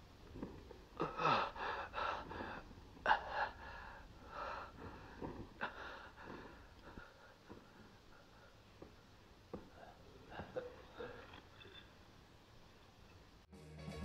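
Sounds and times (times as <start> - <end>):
man moaning: 1.0 - 2.2
man breathing hard: 1.0 - 9.0.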